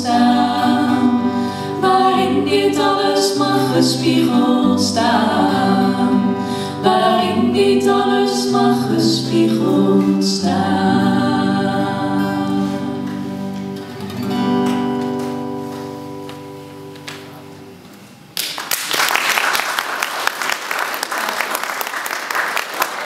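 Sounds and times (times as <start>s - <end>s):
two voices singing: 0.0s - 13.6s.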